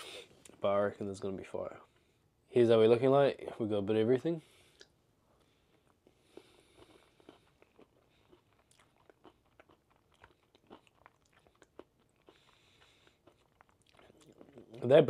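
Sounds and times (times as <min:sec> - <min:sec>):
crunchy pastry chewing: 0:05.8 - 0:14.8.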